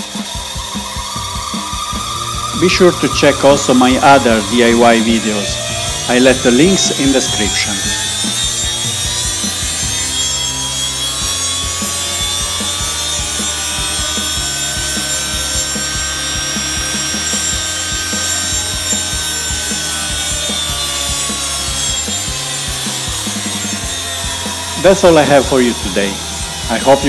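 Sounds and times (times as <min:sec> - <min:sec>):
electric motor whining: 0:00.0 - 0:27.0.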